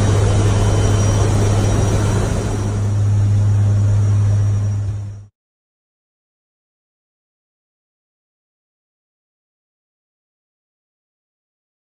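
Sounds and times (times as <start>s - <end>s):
engine and air hiss: 0.0s - 5.3s
propeller hum: 0.0s - 5.3s.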